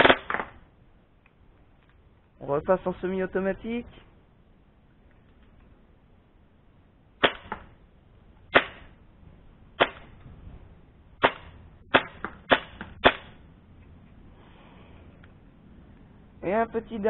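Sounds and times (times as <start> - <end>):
suppressed airsoft gun shots: 7.2 - 7.7, 8.5 - 9.0, 11.2 - 13.4.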